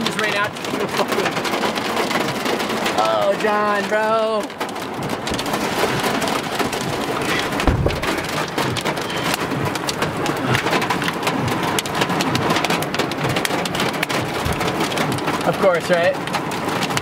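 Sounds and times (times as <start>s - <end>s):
hail and rain on a truck roof: 0.0s - 17.0s
low thump: 7.5s - 8.5s.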